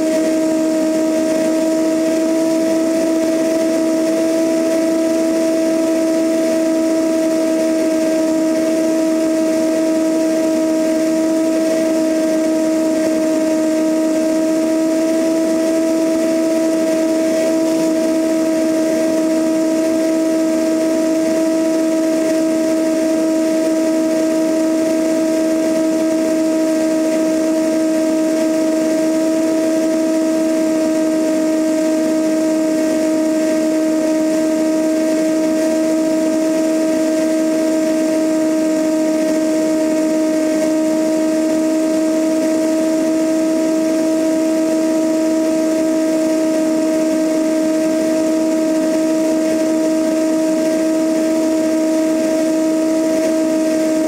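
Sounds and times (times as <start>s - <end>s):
propeller aircraft engine droning: 0.0s - 54.0s.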